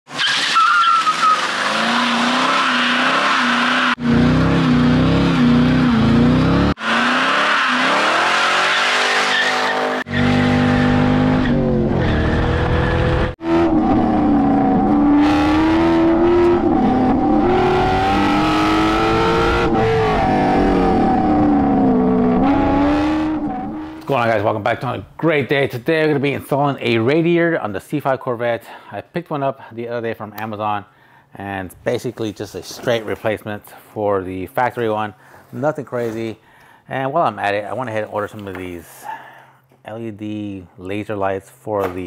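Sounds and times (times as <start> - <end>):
car engine revving: 1.0 - 24.0.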